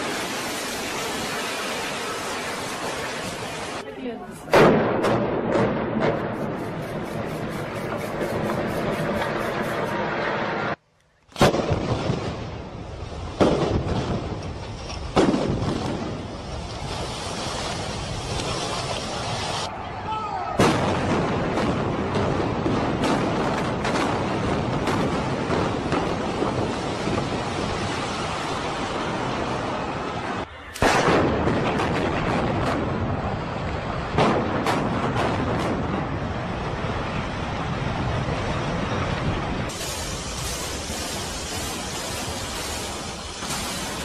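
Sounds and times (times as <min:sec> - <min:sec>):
demolition explosive blasts: 0:04.4 - 0:07.3, 0:08.1 - 0:18.4, 0:20.6 - 0:44.0
loud explosive bang: 0:04.5 - 0:06.6, 0:20.6 - 0:26.6, 0:30.8 - 0:33.3.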